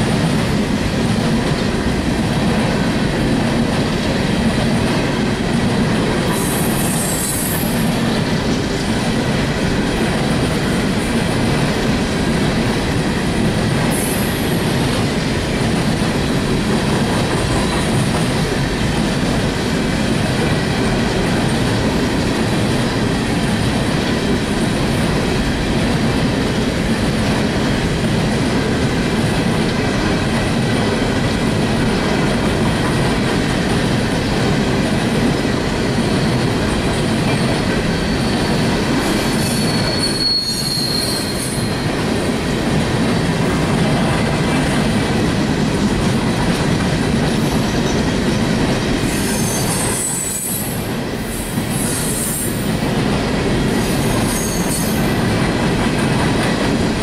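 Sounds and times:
train rumbling over track: 0:00.0 - 0:57.0
high-pitched train squeals: 0:06.3 - 0:08.0, 0:13.9 - 0:14.7, 0:35.9 - 0:42.0, 0:49.0 - 0:52.8, 0:53.8 - 0:55.2.

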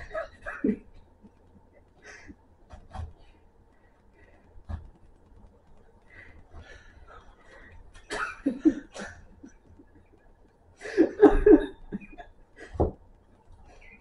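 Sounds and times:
man laughing: 0:10.8 - 0:12.3.

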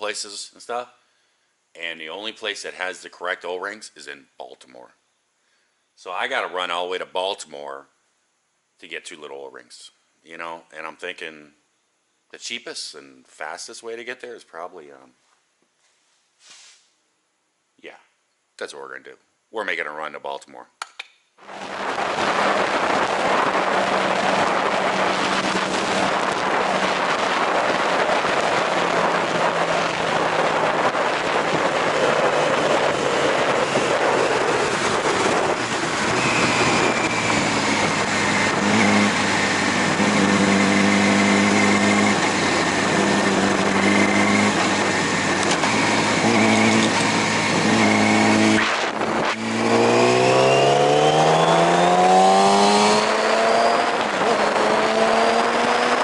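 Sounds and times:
motorcycle engine: 0:21.4 - 0:56.0
wind rush: 0:21.4 - 0:56.0.

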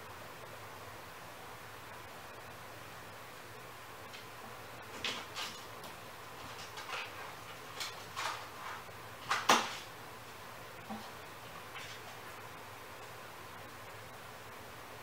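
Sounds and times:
kittens scrabbling at plastic carrier: 0:04.9 - 0:09.9.

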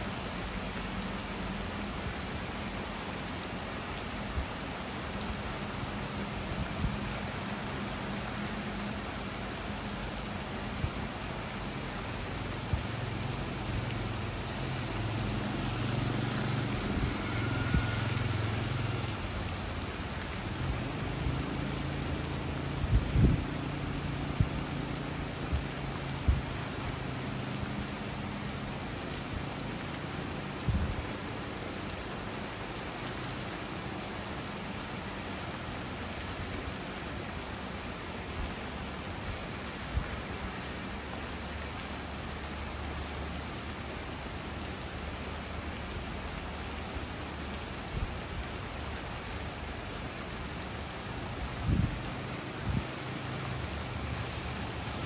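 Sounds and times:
rain on street and leaves: 0:00.0 - 0:55.0.

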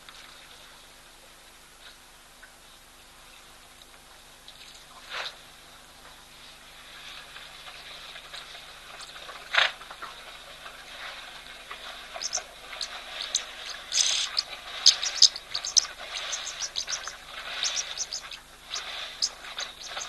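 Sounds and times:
steady background hiss: 0:00.0 - 0:20.0
small birds chirping: 0:12.0 - 0:20.0
sharp bird call: 0:12.2 - 0:20.0.

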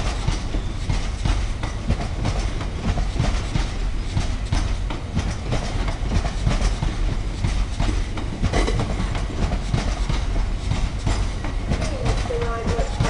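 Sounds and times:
freight train rumbling past: 0:00.0 - 0:13.0
wheels clicking over rail joints: 0:00.0 - 0:13.0.

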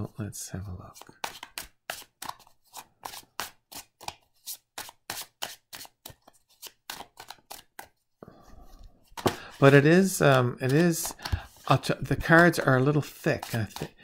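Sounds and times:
cards being shuffled: 0:00.9 - 0:08.0, 0:08.8 - 0:14.0.

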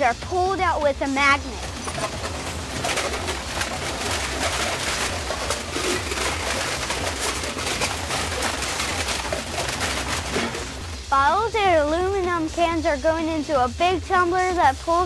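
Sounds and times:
recyclables clattering on conveyor: 0:00.6 - 0:11.2.

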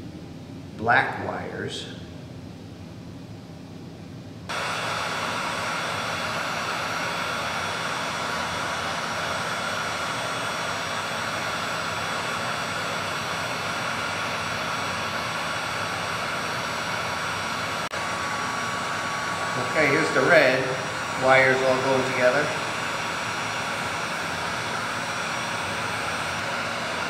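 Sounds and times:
heat gun fan whining: 0:00.0 - 0:27.0.

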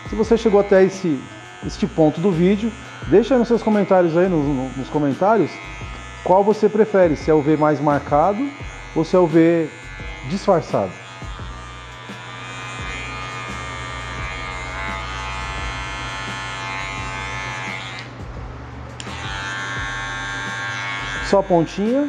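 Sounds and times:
electric hair clipper buzzing: 0:00.0 - 0:18.3, 0:18.9 - 0:22.0.

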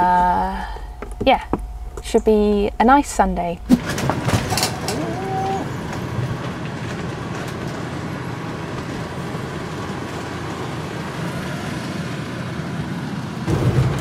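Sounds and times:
van engine and road noise: 0:03.8 - 0:14.0.

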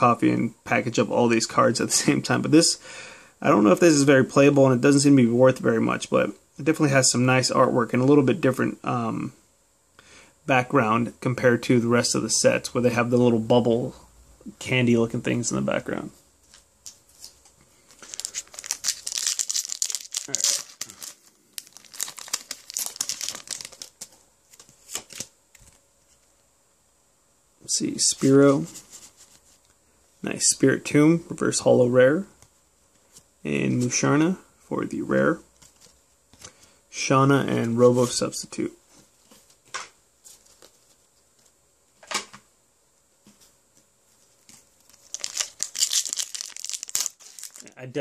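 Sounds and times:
foil wrapper crinkling: 0:17.2 - 0:25.8, 0:44.8 - 0:47.8.

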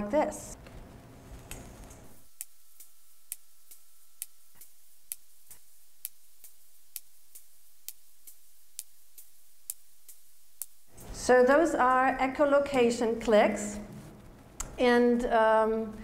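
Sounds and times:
whale echolocation clicks underwater: 0:02.4 - 0:10.8.

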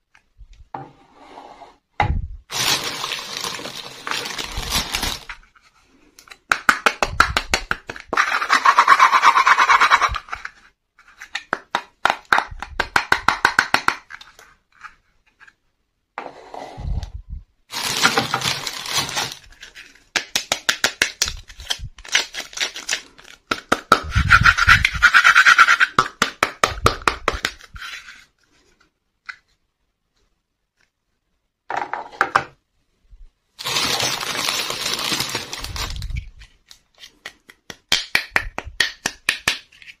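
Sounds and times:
plastic wrapping crinkling: 0:02.5 - 0:05.4, 0:17.7 - 0:20.1, 0:33.6 - 0:37.2
plastic toy pieces tapping: 0:11.3 - 0:14.2, 0:20.1 - 0:24.1, 0:37.1 - 0:40.0.

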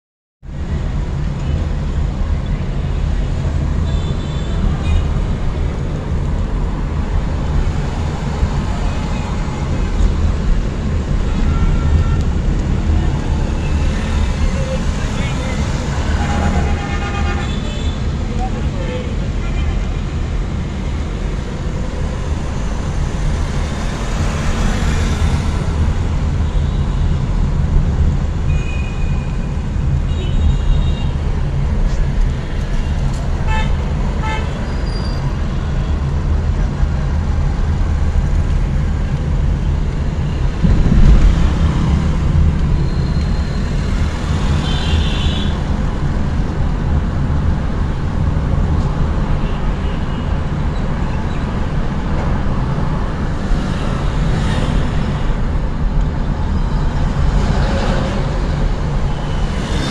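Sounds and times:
road and engine rumble in car: 0:35.2 - 0:59.9
low bump: 0:40.4 - 0:43.7.

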